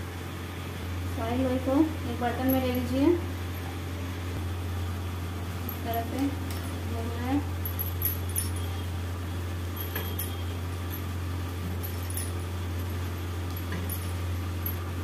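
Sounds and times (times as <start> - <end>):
steady low hum: 0.0 - 15.0
bangles clinking: 5.6 - 15.0.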